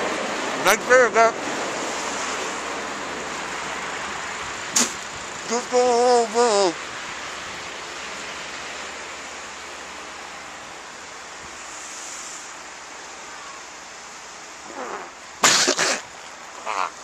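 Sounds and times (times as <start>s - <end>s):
wind and falling snow hiss: 0.0s - 17.0s
man spluttering coughs: 15.4s - 16.1s
man groaning: 16.6s - 17.0s.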